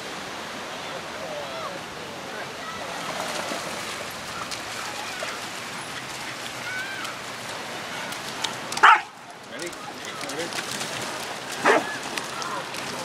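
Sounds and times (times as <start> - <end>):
surf rushing: 0.0 - 13.0
wind: 0.0 - 13.0
dogs splashing through water: 2.7 - 13.0.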